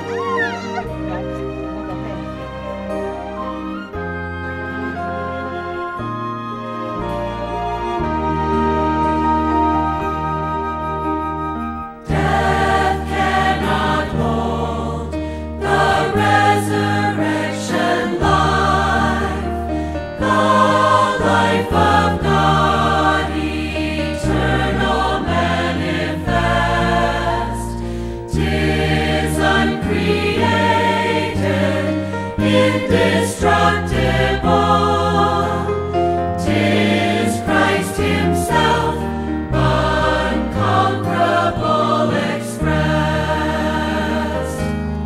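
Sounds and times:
choral singing over bass line: 12.0 - 45.0.

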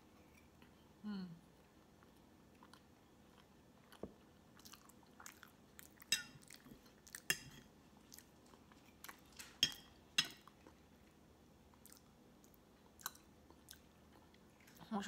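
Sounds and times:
soft chewing: 0.0 - 15.0
fork clinking on ceramic plate: 9.6 - 10.4.

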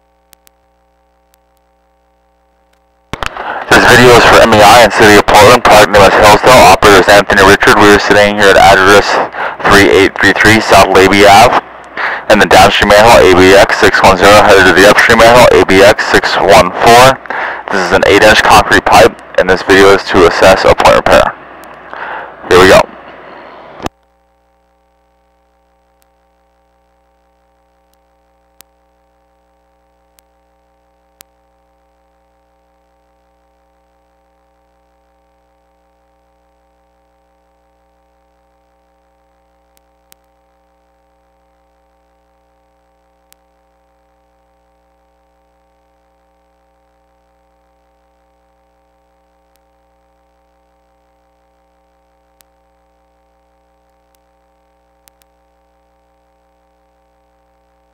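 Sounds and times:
electrical hum: 0.0 - 57.9
faint clicks: 55.0 - 55.4.

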